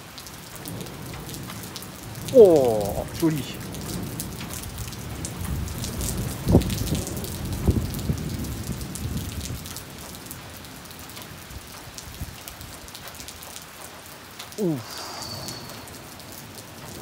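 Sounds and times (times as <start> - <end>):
rain hissing: 0.0 - 17.0
raindrops ticking close by: 0.0 - 17.0
thunder rumbling: 0.7 - 9.8, 14.7 - 17.0.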